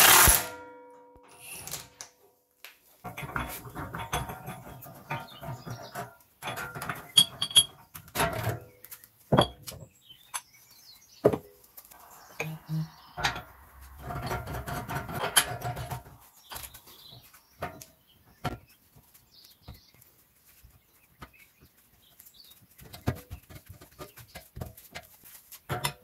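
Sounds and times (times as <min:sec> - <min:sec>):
metal tool parts rattling: 0:03.1 - 0:08.6
metal parts clinking: 0:06.6 - 0:07.8.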